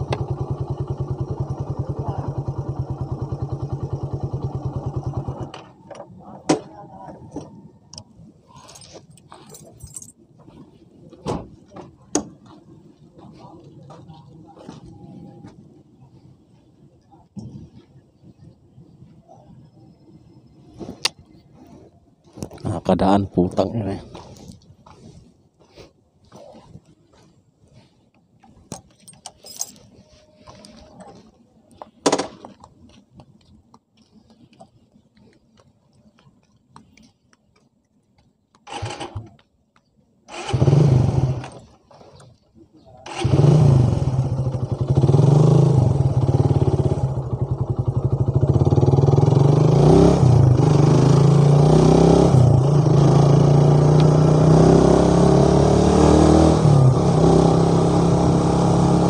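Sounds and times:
motorcycle engine running: 0.0s - 5.9s, 43.0s - 59.0s.

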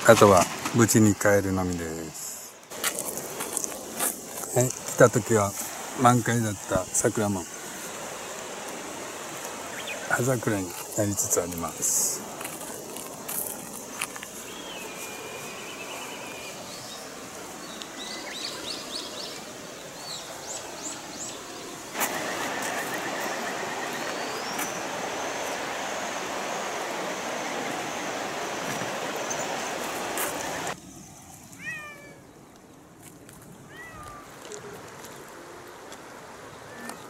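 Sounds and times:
birds chirping: 3.4s - 32.8s
steady rushing noise: 16.6s - 30.8s.

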